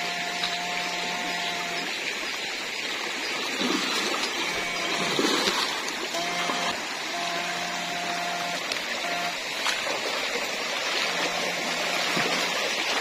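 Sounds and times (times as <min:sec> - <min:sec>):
electric hum: 0:00.0 - 0:02.1, 0:03.7 - 0:13.0
stream running over rocks: 0:00.0 - 0:13.0.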